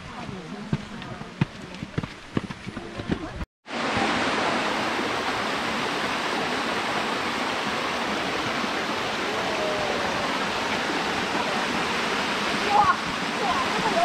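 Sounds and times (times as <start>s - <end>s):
stream flowing over rocks: 3.7s - 14.0s.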